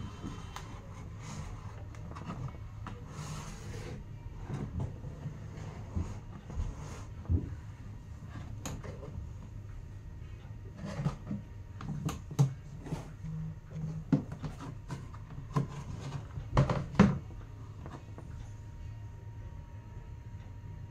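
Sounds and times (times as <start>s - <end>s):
steady low hum: 0.0s - 20.9s
plastic cabinet clicks and knocks: 15.5s - 17.3s.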